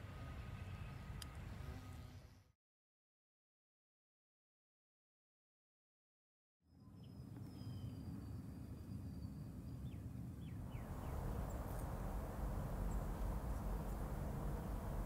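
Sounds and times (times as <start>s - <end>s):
bird chirps: 6.8s - 15.0s
wind rumble on microphone: 7.4s - 15.0s.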